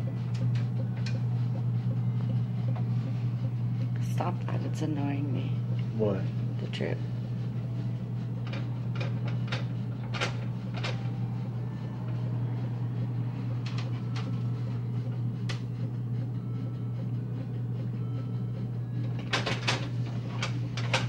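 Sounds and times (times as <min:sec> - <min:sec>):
low hum: 0:00.0 - 0:21.0.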